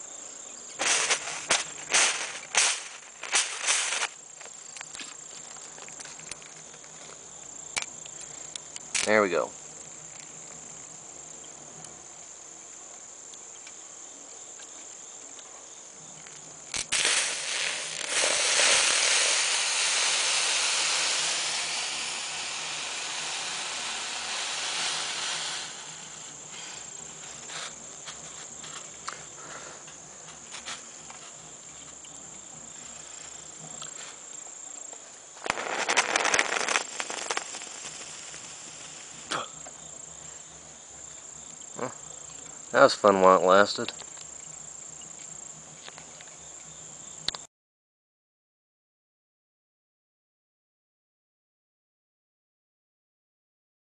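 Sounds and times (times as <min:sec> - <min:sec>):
crickets trilling: 0:00.0 - 0:47.5
crackling sputtering burst: 0:00.8 - 0:04.2, 0:16.7 - 0:27.7, 0:35.4 - 0:40.4
steam boiler hissing: 0:00.8 - 0:04.3, 0:16.8 - 0:31.6, 0:35.4 - 0:43.2
sharp pops: 0:00.8 - 0:05.2, 0:16.7 - 0:28.2, 0:35.4 - 0:39.8.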